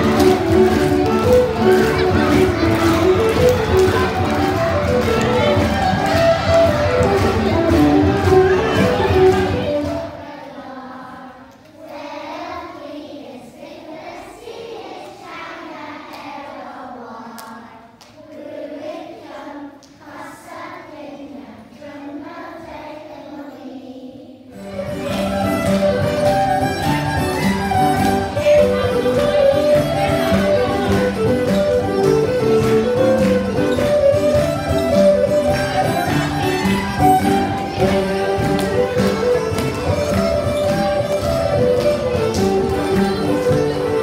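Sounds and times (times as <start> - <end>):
folk music with fiddle: 0.0 - 10.2, 24.6 - 44.0
children singing together: 8.1 - 25.4.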